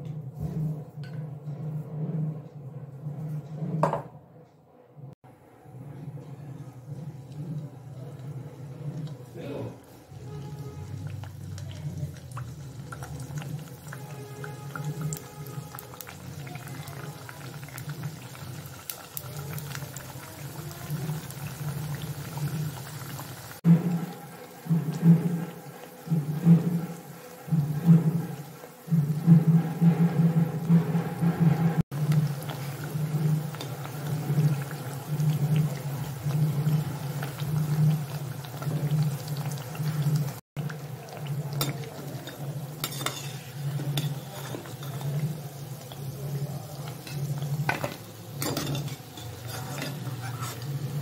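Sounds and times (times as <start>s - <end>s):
oil sizzling and crackling: 7.2s - 51.0s
metal spatula clinking on pan: 41.6s - 45.0s, 47.1s - 50.1s.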